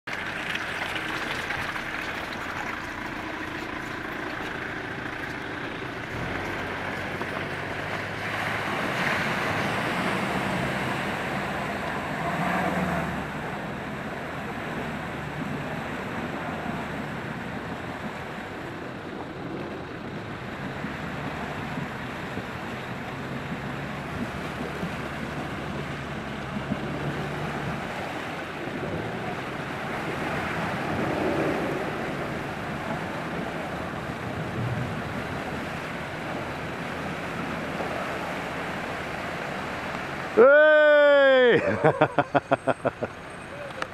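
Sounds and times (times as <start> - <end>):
van engine under load: 0.0 - 43.9
water sloshing around wheels: 0.0 - 43.9
wind buffeting microphone: 13.2 - 40.2.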